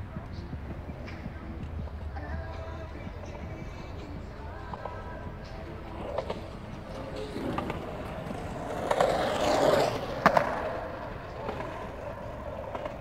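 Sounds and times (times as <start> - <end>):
wheels rolling on pavement: 0.0 - 13.0.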